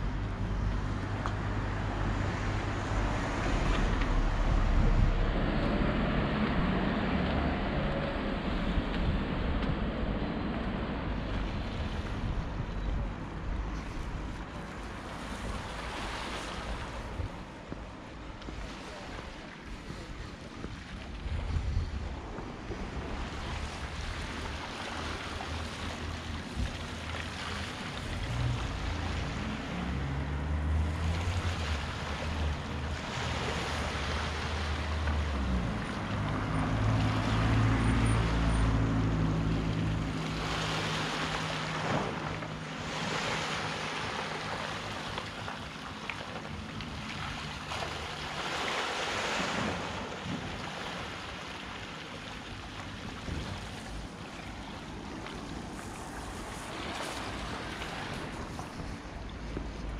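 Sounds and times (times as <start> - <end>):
low engine drone: 0.0 - 15.5
wind on microphone: 0.0 - 30.0, 53.0 - 59.9
sea waves washing in: 0.0 - 59.9.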